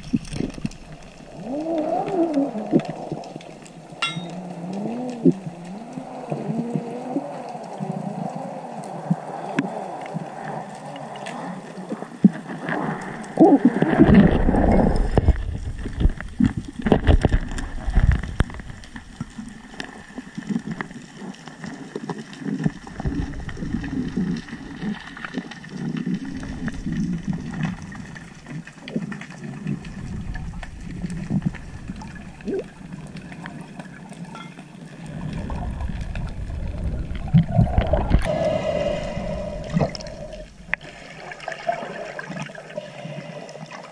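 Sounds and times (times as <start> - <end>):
water rushing and bubbling: 0.0 - 43.9.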